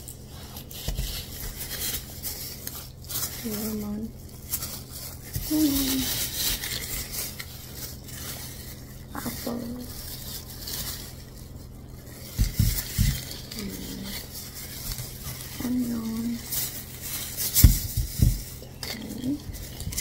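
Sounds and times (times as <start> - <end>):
packaging rustling: 0.0 - 20.0
dull thumps: 12.2 - 13.6, 17.4 - 18.6.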